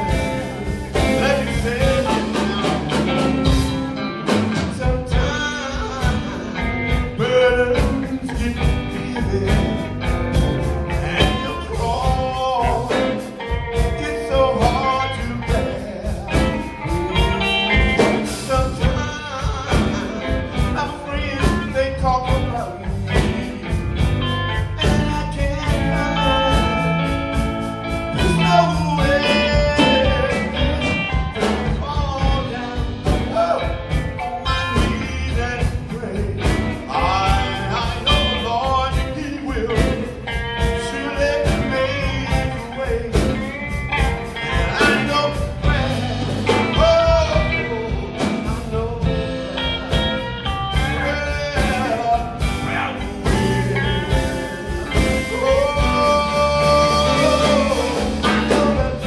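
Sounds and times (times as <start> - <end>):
drum kit beat: 0.0 - 59.0
electric guitar: 0.0 - 59.0
voices singing gospel: 0.0 - 59.0.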